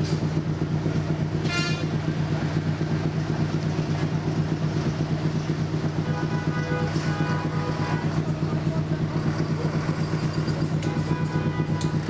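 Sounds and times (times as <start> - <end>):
diesel engine low drone: 0.0 - 12.0
short high horn toot: 1.4 - 2.0, 6.0 - 8.4, 10.4 - 12.0.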